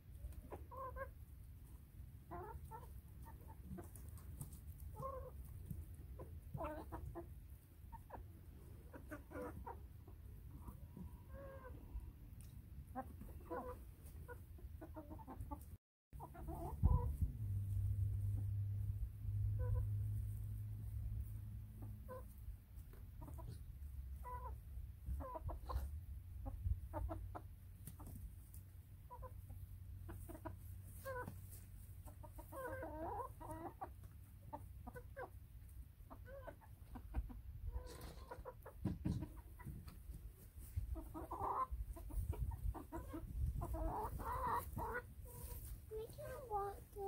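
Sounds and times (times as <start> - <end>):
hens clucking: 0.0 - 18.5, 19.2 - 47.0.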